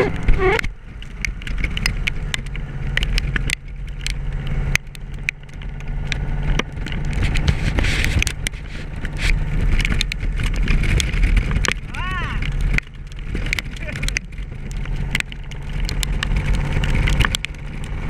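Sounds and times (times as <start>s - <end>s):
motorcycle engine running: 0.0s - 18.0s
sharp clicks: 0.2s - 18.0s.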